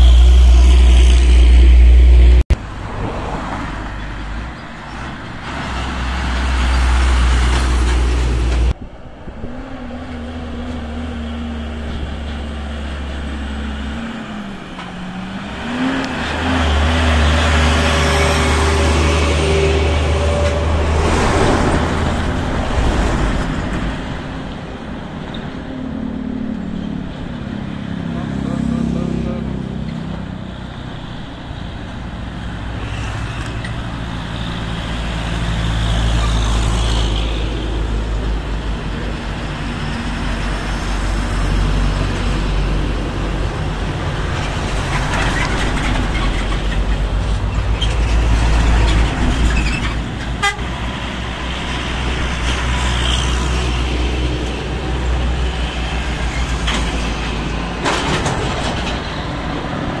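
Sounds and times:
diesel trucks labouring uphill: 0:00.0 - 1:00.0
vehicle horn toot: 0:50.4 - 0:50.7.

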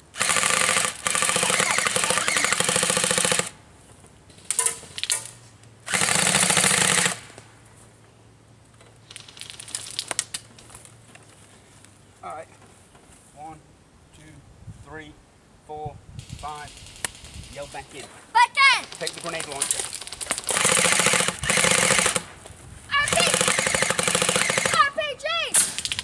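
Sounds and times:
airsoft gun firing bursts: 0:00.1 - 0:03.6, 0:05.8 - 0:07.3, 0:18.8 - 0:22.3, 0:23.0 - 0:26.0.

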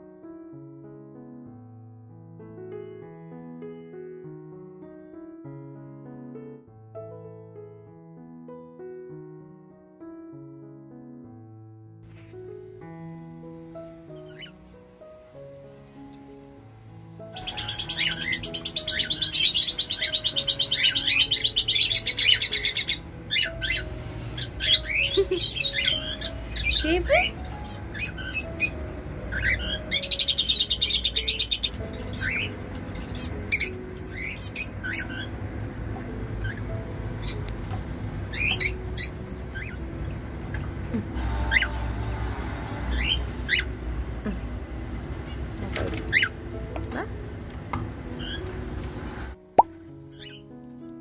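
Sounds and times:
birds chirping: 0:14.0 - 0:35.4, 0:38.3 - 0:40.6.

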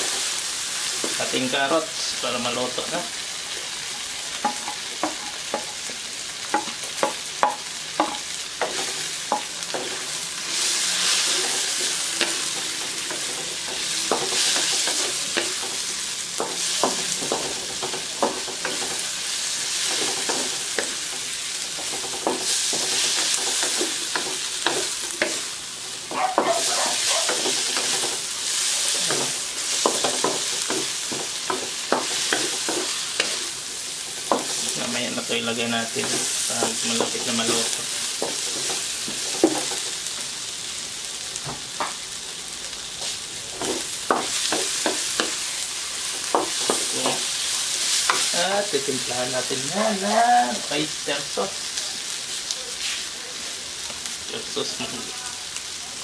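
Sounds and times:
vegetables sizzling in oil: 0:00.0 - 0:56.0.

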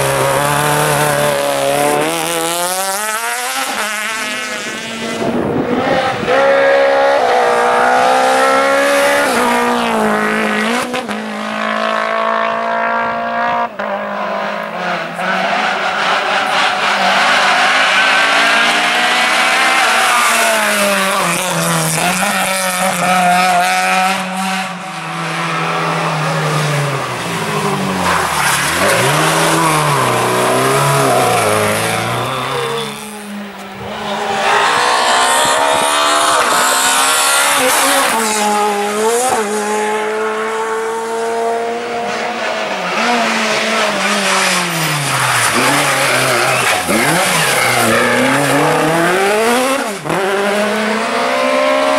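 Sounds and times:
rally car engines revving hard: 0:00.0 - 0:51.9.

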